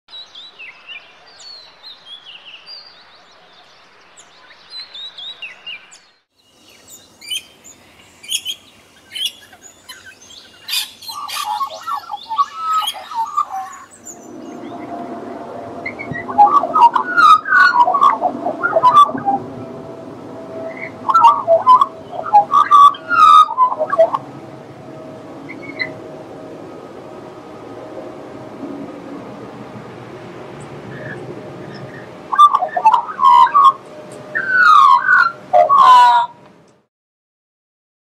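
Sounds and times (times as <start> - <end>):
birds whistling: 4.6 - 15.0, 15.8 - 19.4, 20.6 - 24.2, 30.9 - 36.3
bird warbling: 6.6 - 15.0, 15.8 - 19.7, 20.6 - 24.3, 34.4 - 36.3.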